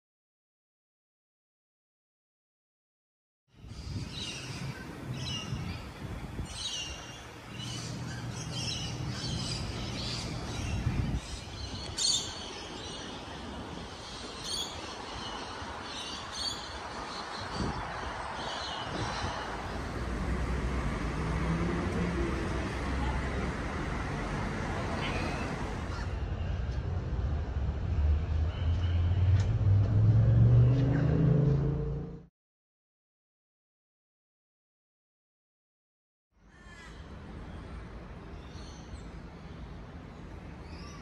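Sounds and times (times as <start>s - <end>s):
small birds chirping: 3.6s - 20.0s
traffic rumble: 3.8s - 32.3s, 36.6s - 41.0s
low engine hum: 19.4s - 26.0s, 26.6s - 32.3s.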